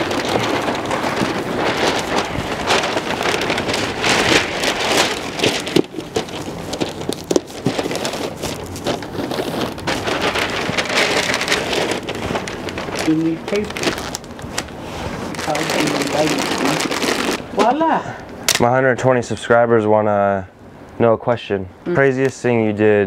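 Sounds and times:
wrapping paper rustling and crinkling: 0.0 - 17.8.

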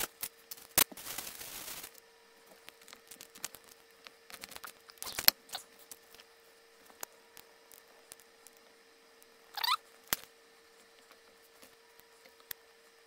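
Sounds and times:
plastic bag rustling: 0.0 - 2.0
faint steady hum: 0.0 - 13.0.

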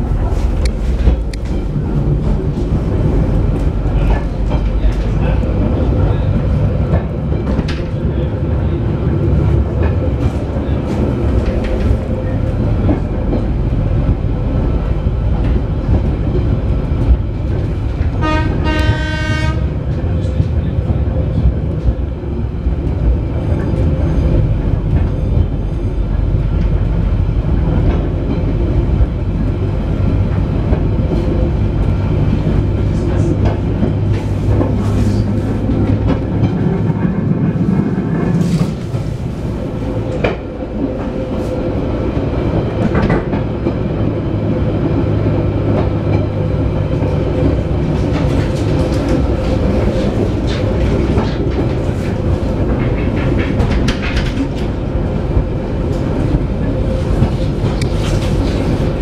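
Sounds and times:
train carriage running drone: 0.0 - 59.0
wheels clicking over rail joints: 45.7 - 59.0.

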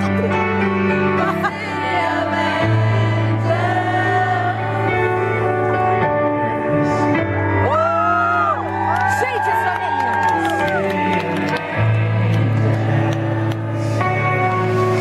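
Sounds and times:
keyboard chords: 0.0 - 15.0
person singing: 10.4 - 15.0.

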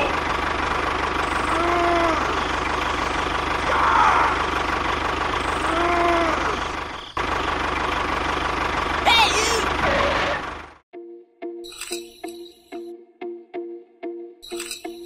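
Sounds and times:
tractor engine idling with knocking: 0.0 - 10.8.

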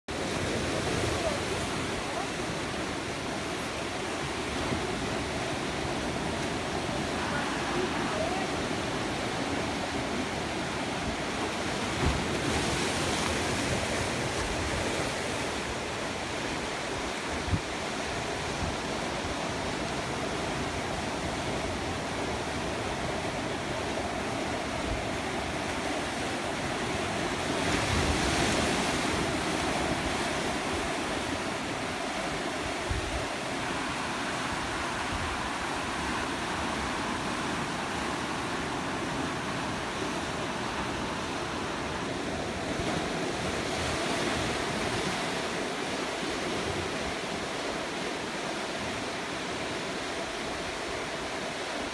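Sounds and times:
surf breaking among rocks: 0.3 - 17.6.

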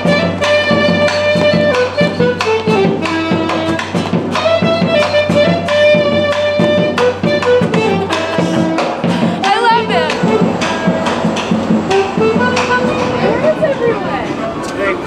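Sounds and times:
drum steady beat: 0.0 - 14.3
sustained melody line: 0.0 - 14.6
wavering high sound: 4.6 - 14.5.

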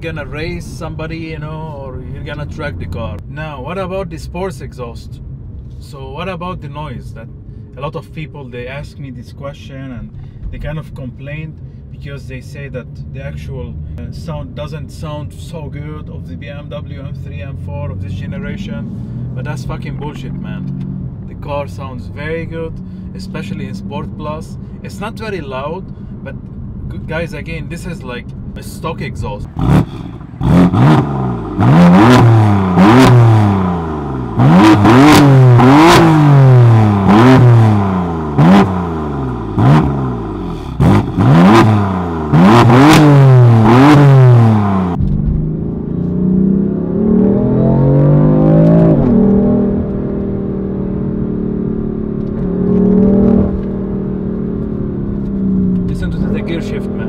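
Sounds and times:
car engine revving with crackles: 12.7 - 57.0
steady car engine note: 13.2 - 57.0.

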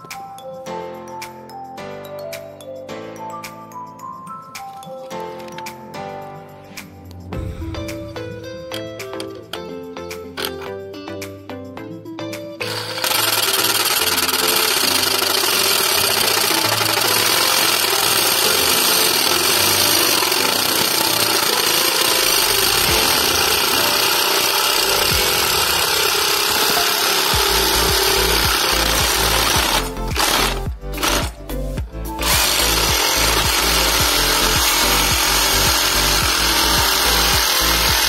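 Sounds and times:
background music: 0.0 - 38.0
reciprocating saw cutting steel: 12.6 - 38.0.

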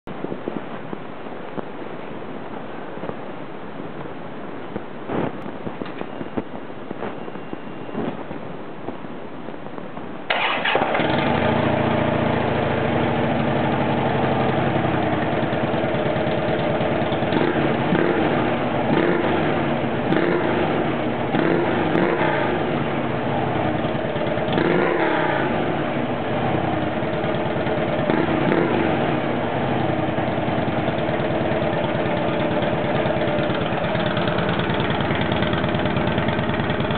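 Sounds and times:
motorcycle engine starting and idling: 10.3 - 36.9.

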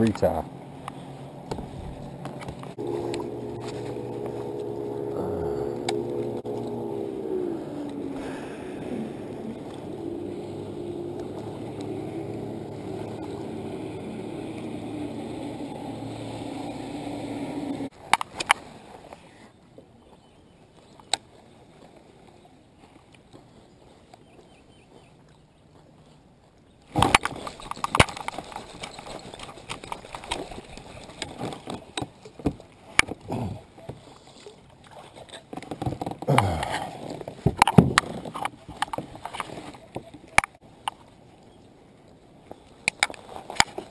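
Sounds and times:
motorboat engine passing: 0.0 - 17.9.

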